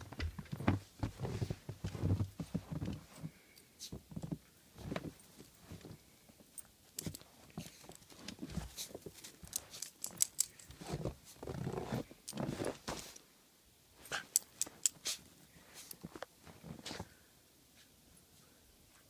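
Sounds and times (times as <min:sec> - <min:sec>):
footsteps crunching in snow: 0:00.6 - 0:03.2, 0:10.7 - 0:13.2.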